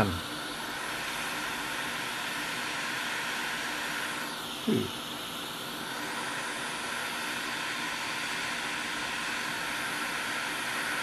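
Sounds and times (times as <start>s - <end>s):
hot air blower hissing: 0.0s - 11.0s.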